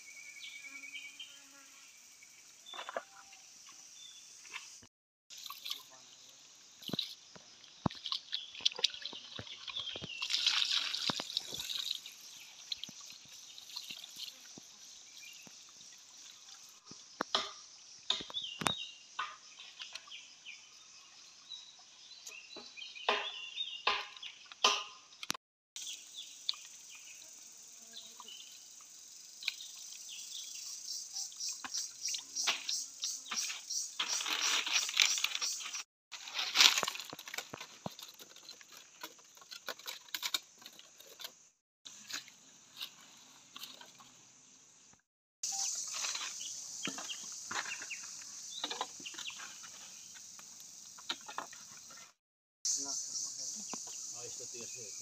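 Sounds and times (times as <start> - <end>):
wet rice grains pattering: 6.8 - 14.8
dry sticks tapping and rustling: 36.2 - 41.4.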